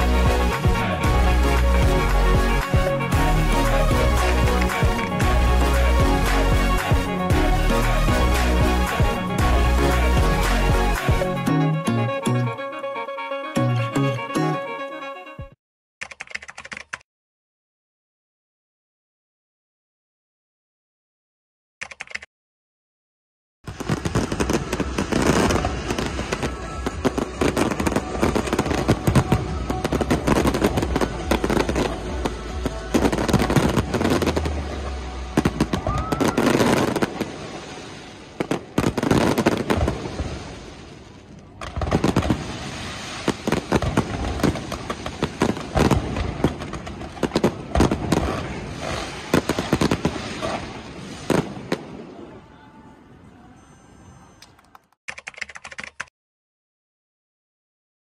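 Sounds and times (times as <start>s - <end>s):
fireworks bangs and crackling: 23.7s - 52.3s.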